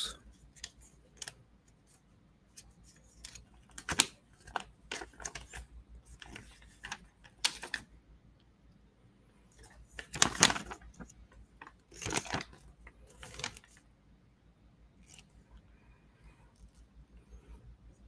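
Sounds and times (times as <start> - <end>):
paper crinkling: 0.4 - 7.9, 9.5 - 13.8.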